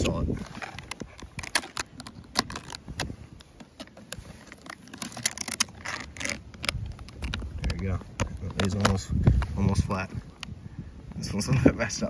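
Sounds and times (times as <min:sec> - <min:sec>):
metal clips and plastic sockets rattling: 0:00.0 - 0:09.5.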